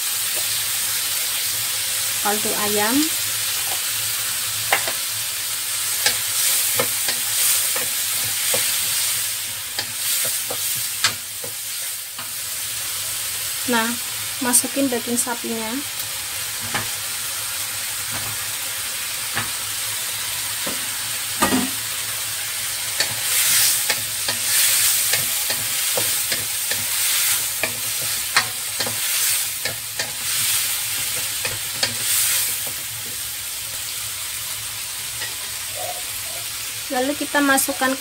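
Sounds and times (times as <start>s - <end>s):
food sizzling in a wok: 0.0s - 38.0s.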